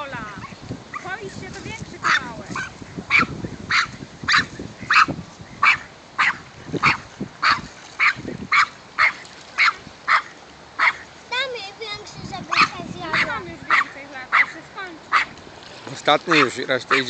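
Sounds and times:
small dog barking: 2.0s - 11.0s, 12.5s - 15.3s.

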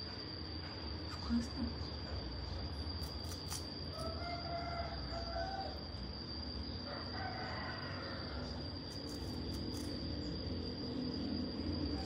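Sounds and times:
high insect drone: 0.0s - 12.0s
rooster crowing: 3.9s - 6.0s, 6.8s - 8.8s.

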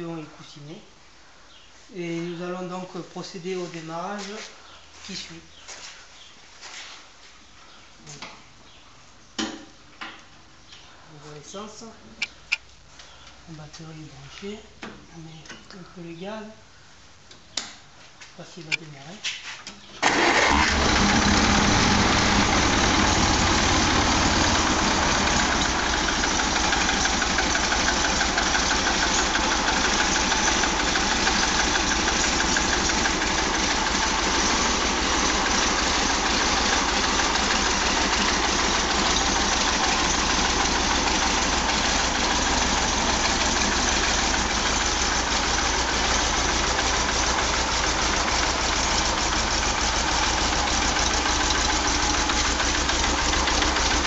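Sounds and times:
tractor engine idling: 20.0s - 54.0s.

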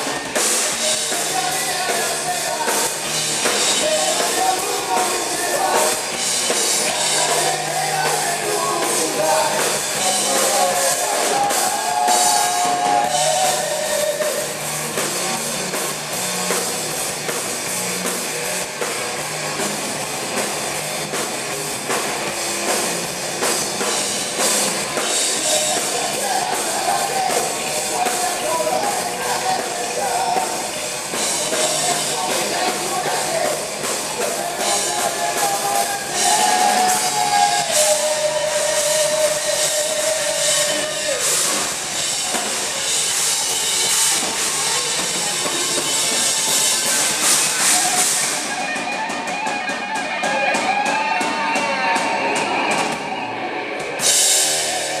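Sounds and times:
person singing: 0.0s - 14.6s, 25.0s - 42.6s
heavy metal band playing live: 0.0s - 55.0s.

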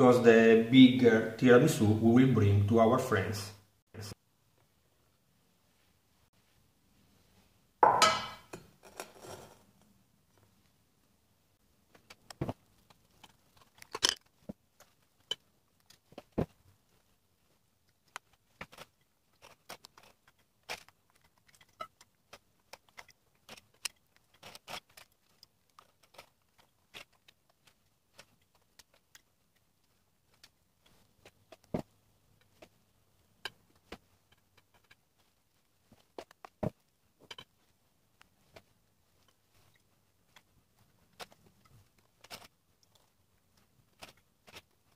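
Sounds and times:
glass dish set down on wood: 7.8s - 8.4s.

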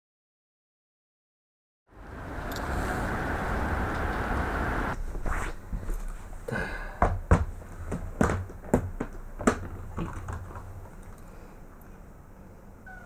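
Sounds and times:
plastic carrier knocks and clicks: 7.0s - 10.6s.

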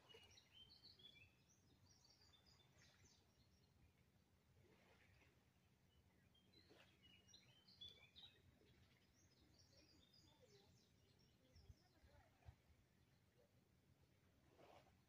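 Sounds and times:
faint bird chirps: 5.9s - 12.6s.

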